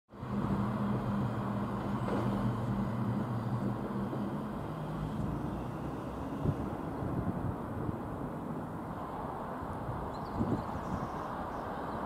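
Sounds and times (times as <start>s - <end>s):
outdoor background noise: 0.1s - 12.0s
diesel locomotive engine idling: 0.2s - 8.8s.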